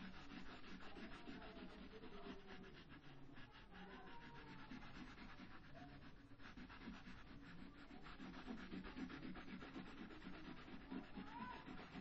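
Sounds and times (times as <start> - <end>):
crayon rubbing on paper: 0.0 - 12.0.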